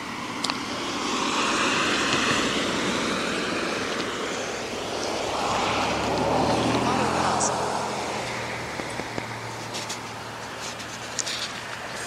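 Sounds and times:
vehicle approaching: 0:00.0 - 0:12.0
vehicle passing: 0:00.0 - 0:12.0.

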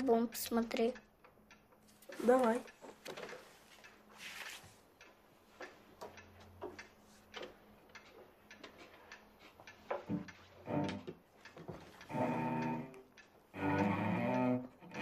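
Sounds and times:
soft rustle: 0:03.3 - 0:04.9.

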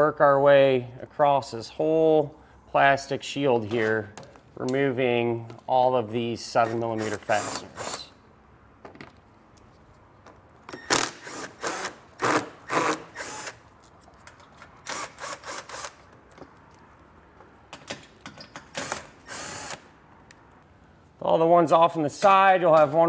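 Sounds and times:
cordless power driver bursts: 0:10.8 - 0:13.6, 0:19.2 - 0:19.9.

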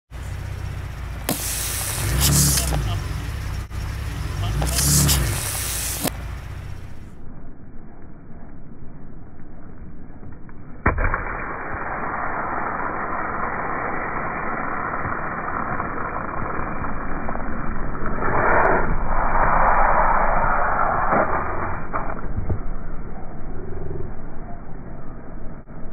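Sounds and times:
ketchup squirting rush: 0:01.2 - 0:03.3, 0:04.4 - 0:06.3.

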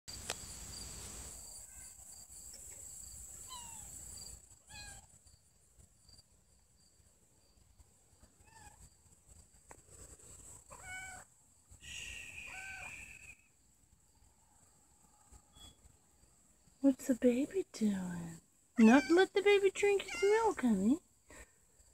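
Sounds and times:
cat mewing: 0:10.7 - 0:11.2, 0:12.5 - 0:13.2, 0:18.8 - 0:19.2.

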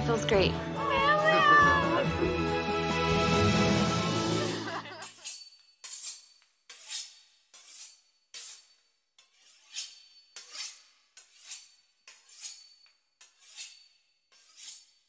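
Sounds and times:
knife sawing through crisp pastry: 0:05.0 - 0:15.0.

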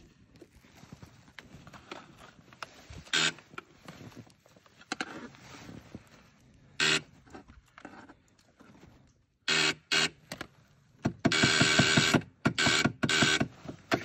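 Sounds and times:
electric starter cranking engine: 0:11.3 - 0:14.0.

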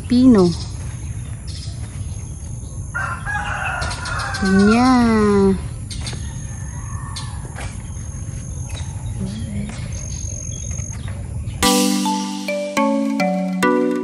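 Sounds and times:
rooster crowing: 0:02.9 - 0:04.9, 0:06.2 - 0:07.6.

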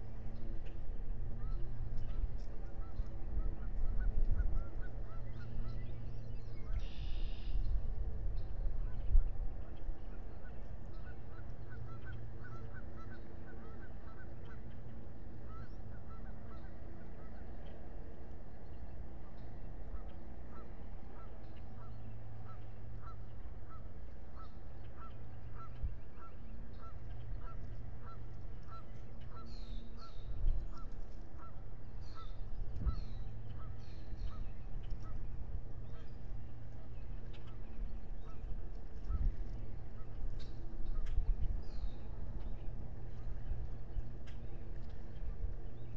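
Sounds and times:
steady low rumble: 0:00.0 - 0:45.9
bird calling in short calls: 0:06.7 - 0:07.6, 0:10.9 - 0:14.6.

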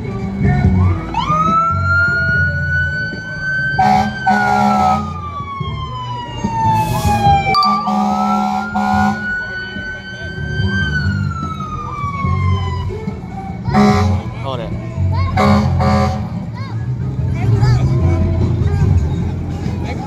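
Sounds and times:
siren wailing: 0:01.2 - 0:14.3
short horn blasts: 0:07.6 - 0:09.2.

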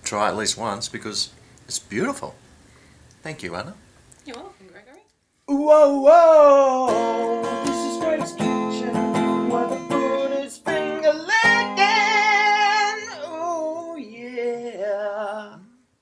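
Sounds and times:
person singing: 0:05.5 - 0:15.8
strummed acoustic guitar: 0:06.0 - 0:13.6.

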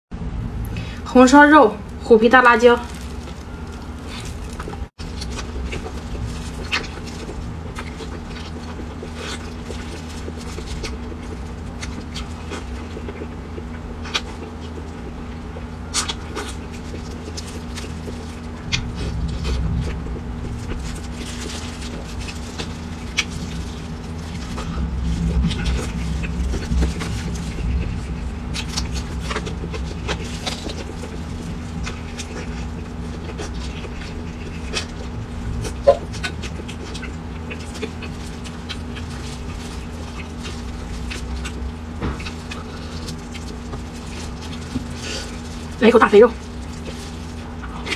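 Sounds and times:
steady low hum: 0:00.1 - 0:47.9
close-up chewing: 0:01.8 - 0:47.9.

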